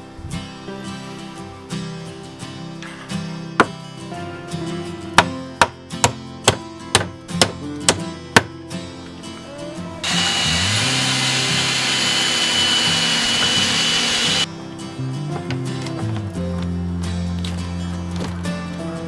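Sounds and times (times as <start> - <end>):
background music: 0.0 - 19.0
hammer striking nails into wood: 5.2 - 8.5
power tool whining: 10.0 - 14.5.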